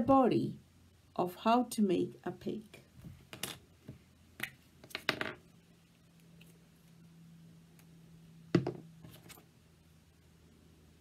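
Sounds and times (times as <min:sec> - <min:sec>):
objects knocking on wooden table: 0:04.8 - 0:05.4, 0:08.5 - 0:08.9.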